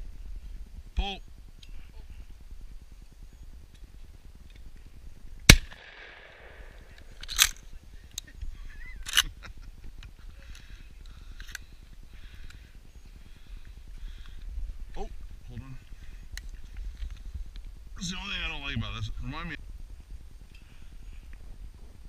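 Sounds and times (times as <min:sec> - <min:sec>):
sharp cracks: 0:05.4 - 0:07.6
shotgun blast: 0:05.5 - 0:07.1.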